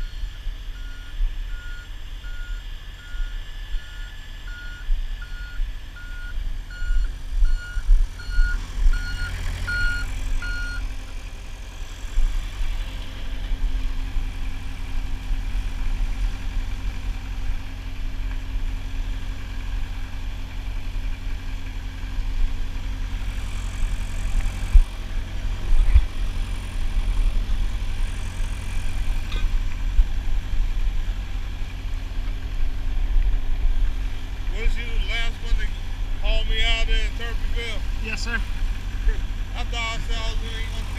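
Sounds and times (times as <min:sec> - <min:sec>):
reversing alarm beeping: 0:00.0 - 0:10.8
idling truck engine rumble: 0:00.0 - 0:40.9.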